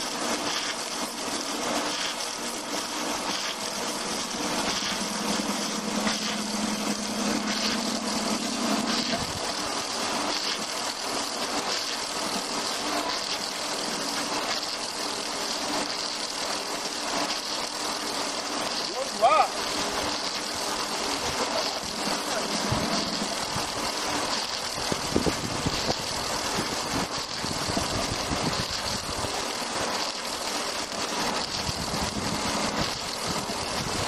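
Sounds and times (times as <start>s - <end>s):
wood lathe cutting log: 0.4s - 27.5s
low hum: 3.5s - 10.4s, 21.8s - 24.0s.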